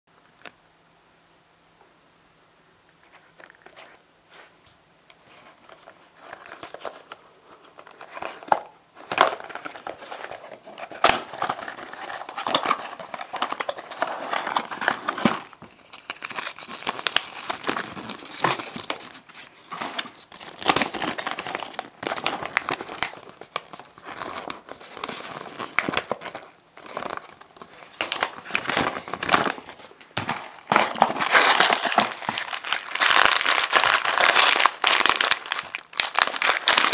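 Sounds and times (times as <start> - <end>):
plastic wrapping crinkling: 5.3 - 36.9
cardboard box torn open: 24.1 - 35.3.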